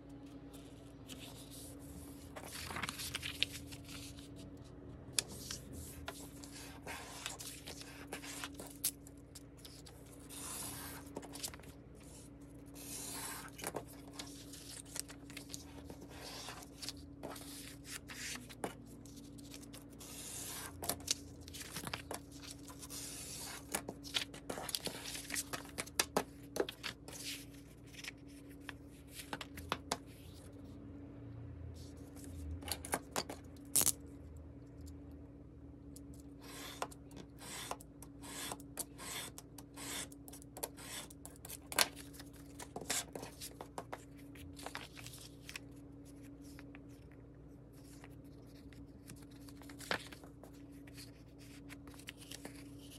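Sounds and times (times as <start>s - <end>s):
faint steady hum: 0.0s - 52.9s
paper rustling and crinkling: 0.5s - 30.5s, 41.6s - 52.9s.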